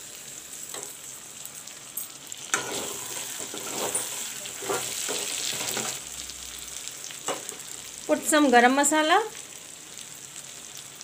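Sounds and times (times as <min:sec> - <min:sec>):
food sizzling in hot oil: 0:00.0 - 0:11.0
spatula scraping pan: 0:02.5 - 0:06.0.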